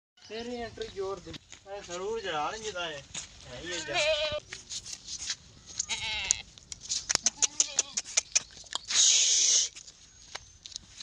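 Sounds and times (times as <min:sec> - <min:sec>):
goat bleating: 0:03.6 - 0:04.4, 0:05.8 - 0:06.5, 0:07.3 - 0:08.1.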